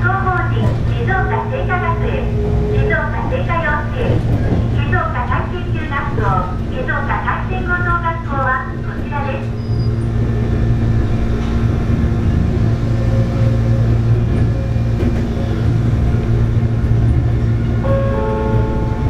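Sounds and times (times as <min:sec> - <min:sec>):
train motors and wheels hum: 0:00.0 - 0:19.0
steady higher tone: 0:17.8 - 0:19.0.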